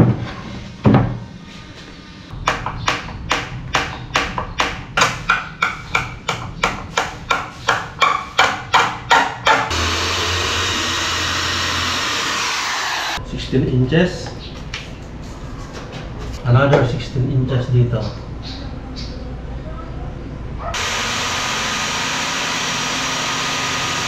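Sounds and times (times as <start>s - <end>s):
electric drill boring into wood: 9.7s - 13.2s, 20.8s - 24.0s.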